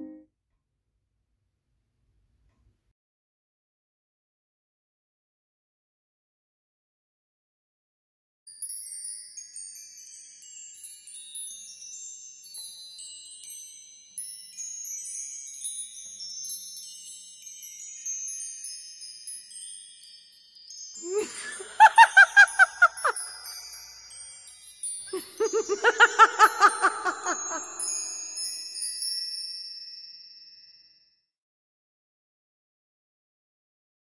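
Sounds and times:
music of high twinkling chimes: 0:08.5 - 0:31.4.

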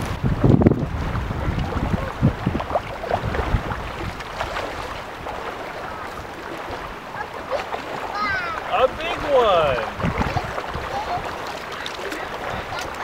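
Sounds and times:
calm water lapping: 0:00.0 - 0:13.0
wind rumbling on microphone: 0:00.0 - 0:13.0.

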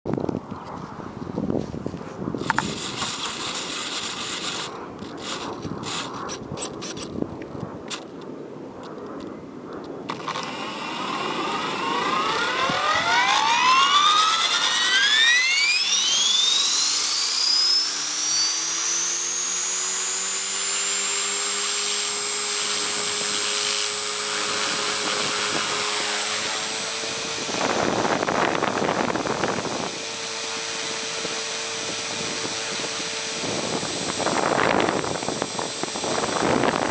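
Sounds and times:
rotor hum: 0:02.1 - 0:36.9
electric motor whine: 0:02.4 - 0:07.1, 0:10.1 - 0:36.9
rushing air: 0:31.2 - 0:36.9.

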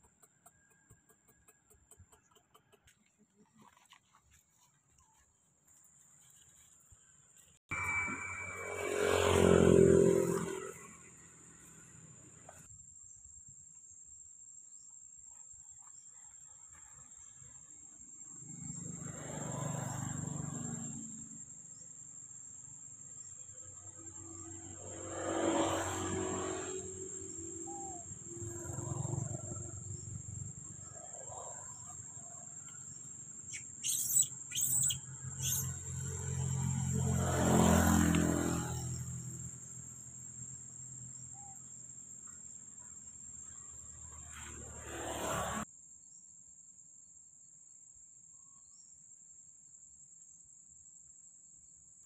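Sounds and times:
high-pitched insect drone: 0:07.7 - 0:12.1, 0:23.4 - 0:40.3
bird chirps: 0:27.4 - 0:36.0.

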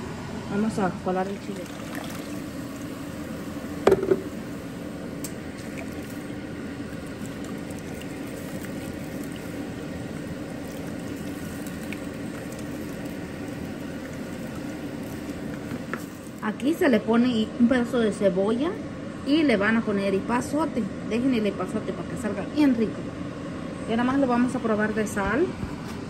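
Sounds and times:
liquid dribbling and simmering: 0:01.2 - 0:16.5
loud knock: 0:03.9 - 0:04.3.

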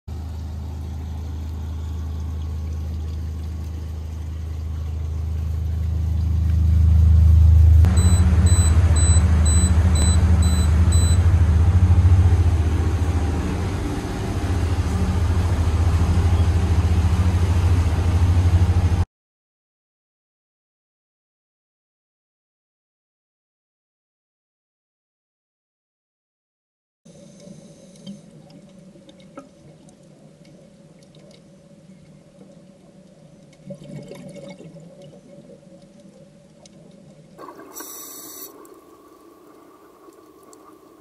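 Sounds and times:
outboard engines humming: 0:00.1 - 0:19.0
electronic beeps: 0:07.9 - 0:11.2.

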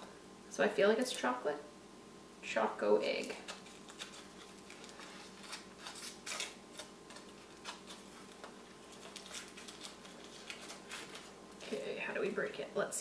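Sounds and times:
foil wrapper crinkling: 0:03.1 - 0:11.7.

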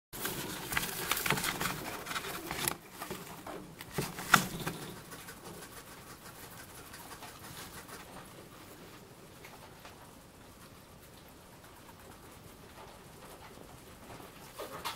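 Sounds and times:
hedgehog rustling in wood shavings: 0:00.2 - 0:09.0.

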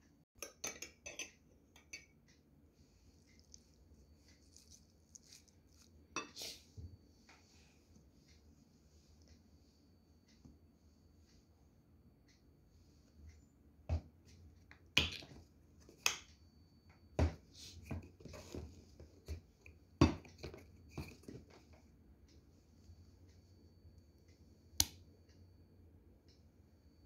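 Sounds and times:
spoon and bottle clicking on glass bowl: 0:00.4 - 0:02.1.

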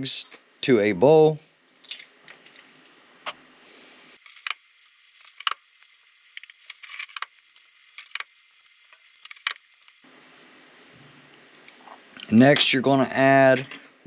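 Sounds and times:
eggshells cracking: 0:04.2 - 0:10.0.

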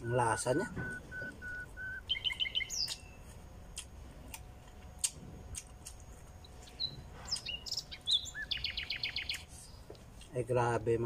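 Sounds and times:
whistled bird notes: 0:00.0 - 0:03.2, 0:06.7 - 0:09.4
small songbirds chirping: 0:00.0 - 0:03.4, 0:06.4 - 0:09.9
chewing and lip smacks: 0:01.2 - 0:07.6.

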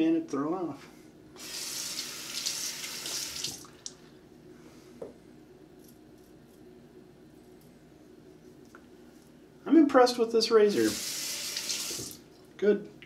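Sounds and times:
tap water splashing into sink: 0:11.6 - 0:12.2.

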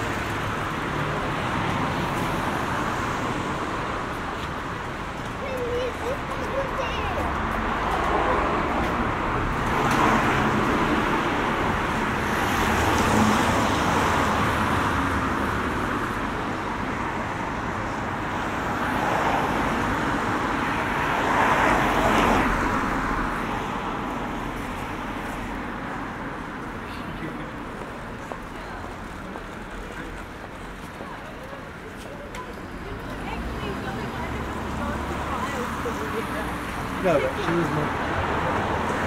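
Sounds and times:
street traffic: 0:00.0 - 0:39.0.

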